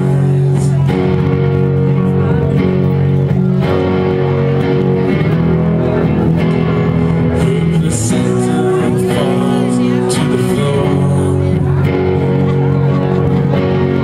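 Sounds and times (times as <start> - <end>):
rock band playing instrumental: 0.0 - 14.0.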